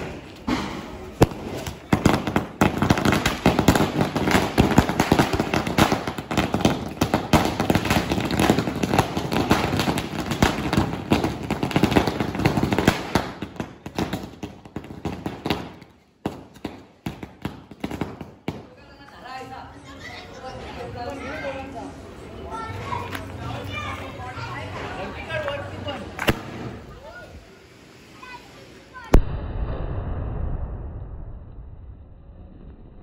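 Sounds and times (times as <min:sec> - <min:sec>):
firecrackers crackling: 0:00.0 - 0:19.6, 0:24.4 - 0:29.6.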